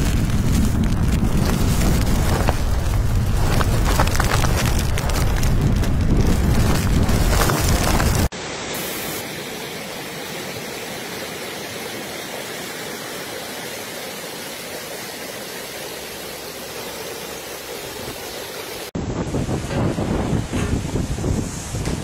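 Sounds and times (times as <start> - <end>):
wind buffeting microphone: 0.0 - 8.3, 19.0 - 22.0
river rushing past bridge piers: 1.6 - 19.0.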